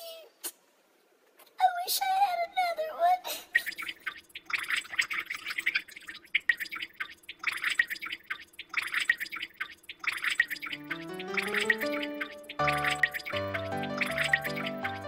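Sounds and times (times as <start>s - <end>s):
music with rising notes: 10.8s - 15.0s.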